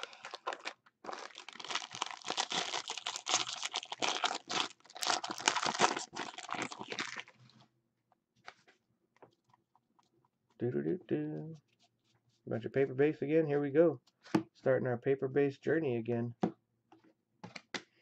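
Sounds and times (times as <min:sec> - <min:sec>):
foil wrapper crinkling and tearing: 0:00.0 - 0:07.5.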